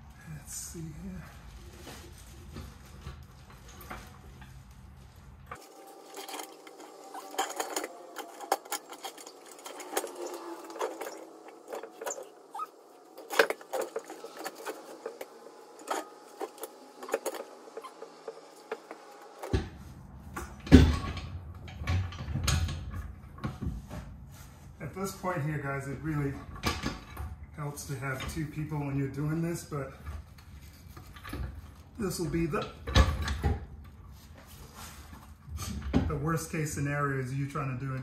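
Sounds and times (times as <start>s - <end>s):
light metal clicks and scrapes: 5.5s - 19.5s.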